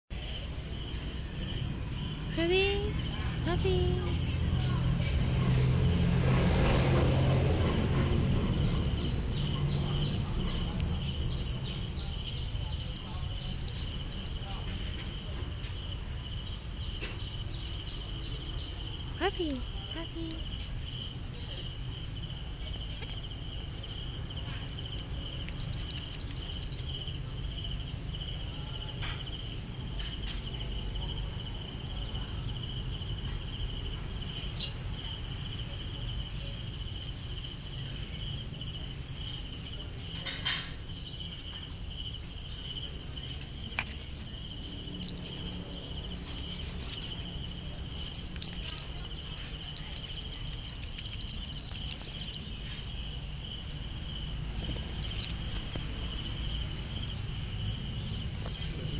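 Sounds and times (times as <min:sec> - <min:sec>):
collar tag jingling: 0:00.8 - 0:05.2, 0:06.8 - 0:58.9
high-pitched insect chirring: 0:08.0 - 0:10.2, 0:23.8 - 0:29.6, 0:41.2 - 0:57.3.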